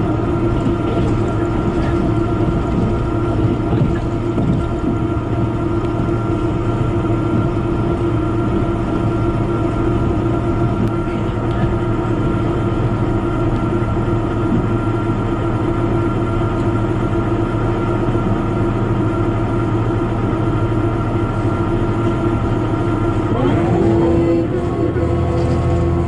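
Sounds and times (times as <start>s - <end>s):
diesel engine hum: 0.0s - 26.0s
train running rumble: 0.0s - 26.0s.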